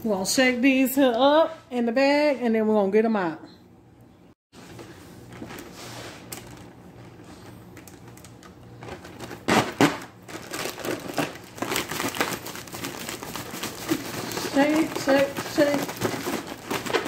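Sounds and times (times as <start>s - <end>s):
plastic bag crinkling: 5.2s - 17.0s
bag shaken with rustling: 10.3s - 17.0s.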